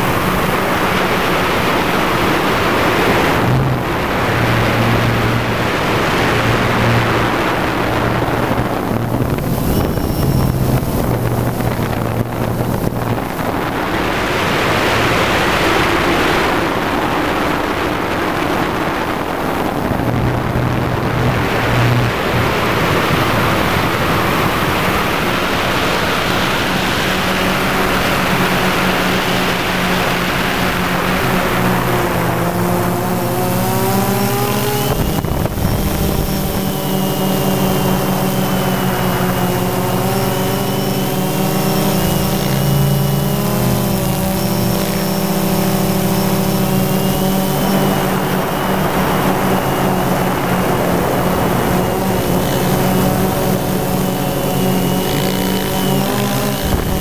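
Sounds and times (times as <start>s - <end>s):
drone propellers buzzing: 0.0s - 57.0s
wind rushing over microphone: 0.0s - 57.0s.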